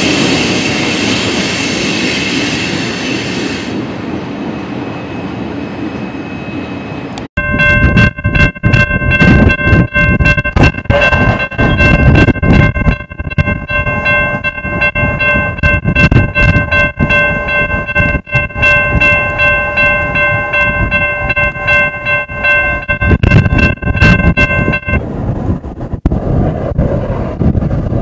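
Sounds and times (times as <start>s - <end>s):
heavy low rumble: 7.4s - 28.0s
locomotive air horn blast: 10.8s - 11.7s.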